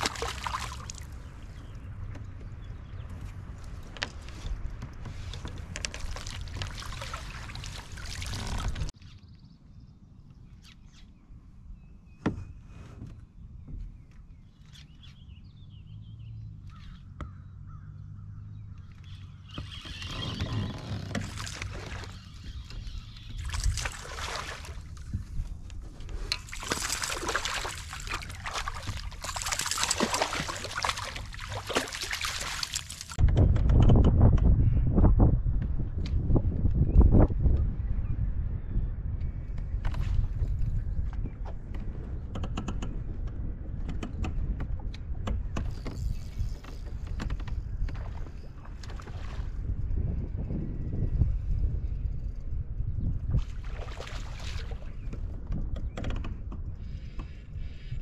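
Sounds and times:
water sloshing against kayak: 0:00.0 - 0:08.9, 0:19.5 - 0:33.2.

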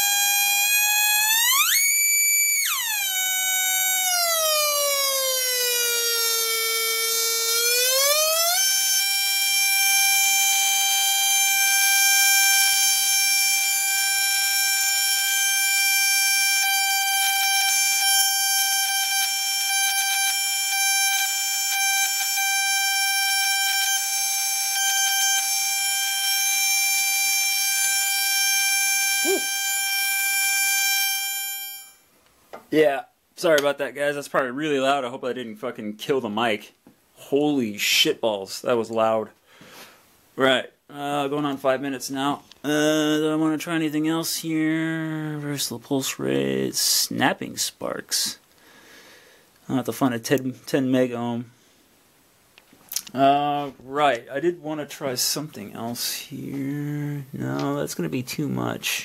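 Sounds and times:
tesla coil buzzing tone: 0:00.0 - 0:32.1.

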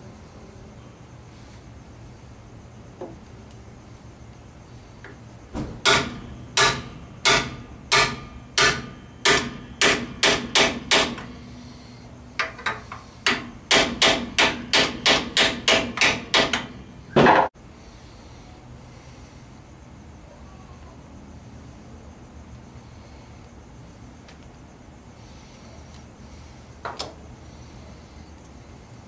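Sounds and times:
loud metal clunk: 0:05.5 - 0:11.4, 0:12.4 - 0:17.5
hammer tapping metal driver: 0:05.9 - 0:11.3, 0:12.4 - 0:16.7.

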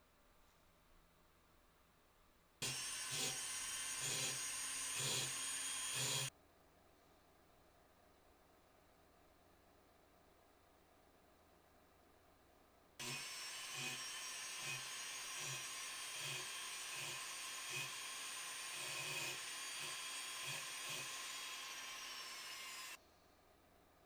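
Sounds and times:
rotary grinder whining on metal: 0:02.6 - 0:06.3, 0:13.0 - 0:23.0.

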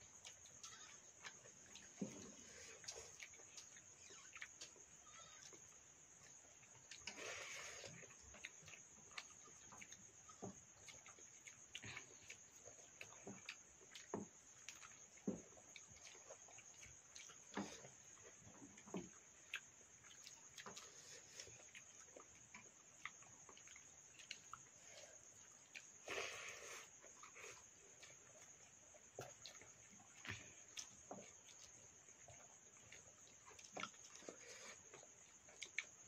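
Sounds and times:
crickets trilling: 0:00.0 - 0:36.0
people eating wet food: 0:00.0 - 0:36.0.

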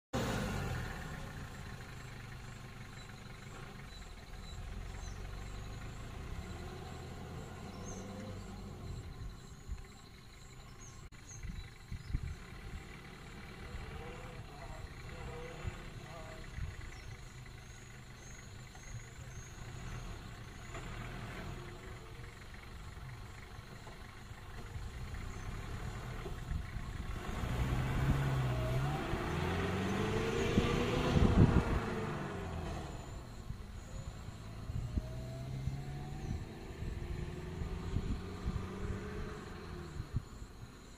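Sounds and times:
engine idling: 0:00.1 - 0:38.8
faint bird chirps: 0:01.2 - 0:27.1, 0:32.2 - 0:40.9
vehicle engine passing: 0:12.2 - 0:40.5.

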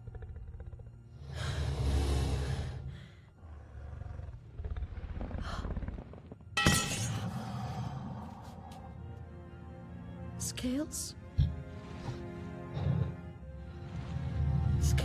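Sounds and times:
growling roar: 0:00.0 - 0:06.0.

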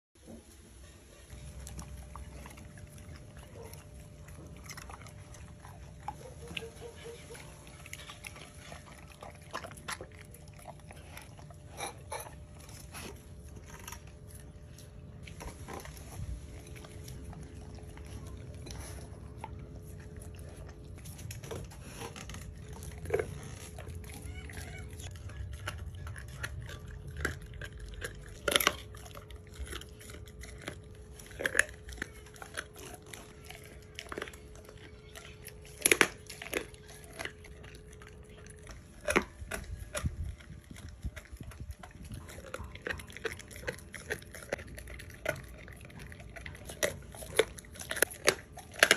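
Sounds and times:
dog chewing meat: 0:00.2 - 0:48.9
bone crunches: 0:22.1 - 0:48.9.

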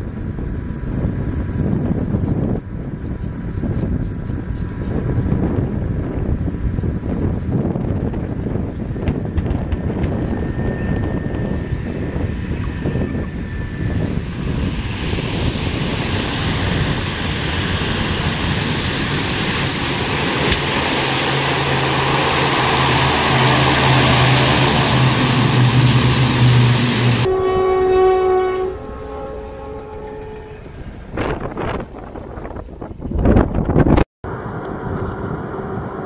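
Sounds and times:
turboprop engines and propellers: 0:00.0 - 0:27.8, 0:28.6 - 0:36.0
high turbine whine: 0:00.0 - 0:36.0
train horn chord: 0:23.3 - 0:30.8.

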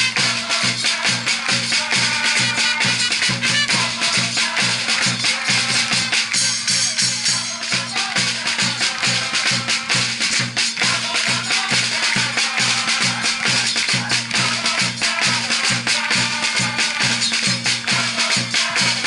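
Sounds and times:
music with fast beat: 0:00.0 - 0:19.0.

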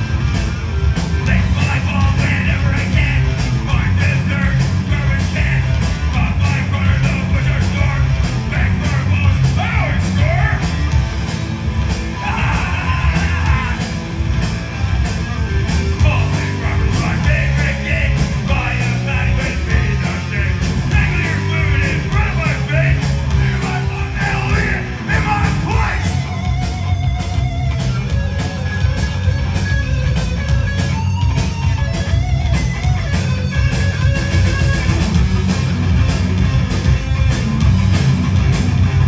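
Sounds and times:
punk rock band playing: 0:00.0 - 0:39.0
person shouting vocals: 0:23.4 - 0:26.2.

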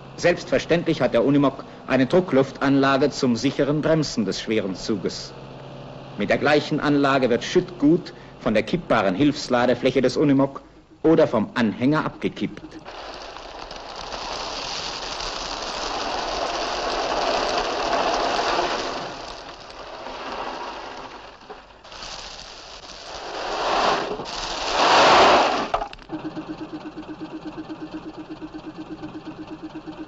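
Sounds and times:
rubble stones pouring off load bed: 0:00.0 - 0:05.3, 0:12.0 - 0:26.6
engine idling: 0:25.6 - 0:30.0.

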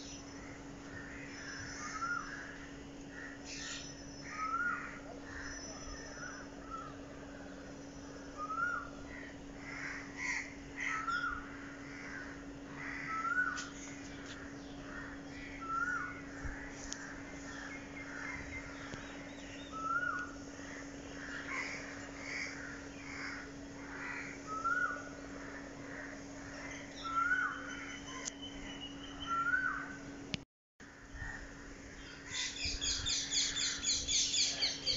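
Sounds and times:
steady low hum: 0:00.0 - 0:34.9
crows cawing: 0:00.4 - 0:06.9, 0:08.6 - 0:19.0, 0:19.8 - 0:27.6.

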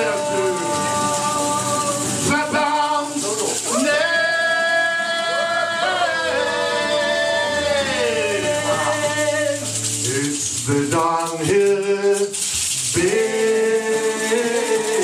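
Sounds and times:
drums: 0:00.0 - 0:04.6
acoustic guitars: 0:00.0 - 0:15.0
high hissing percussion: 0:00.0 - 0:15.0
voices singing held notes: 0:00.0 - 0:15.0
upright double bass: 0:03.5 - 0:11.7.

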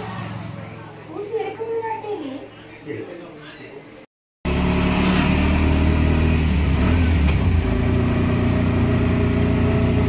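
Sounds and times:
engine running: 0:00.0 - 0:01.1, 0:04.4 - 0:10.0
road noise: 0:00.0 - 0:01.4, 0:04.5 - 0:10.0.

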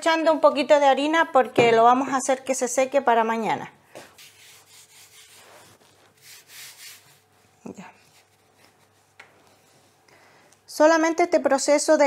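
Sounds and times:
hand brushing dough: 0:04.2 - 0:10.0.

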